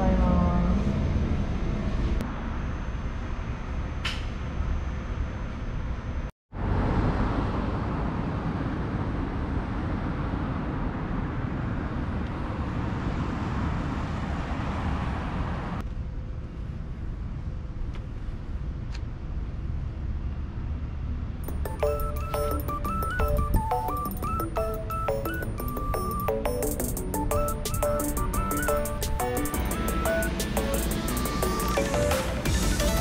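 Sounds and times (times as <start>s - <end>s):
vehicle rumble and hiss: 1.2s - 21.5s, 27.2s - 33.0s.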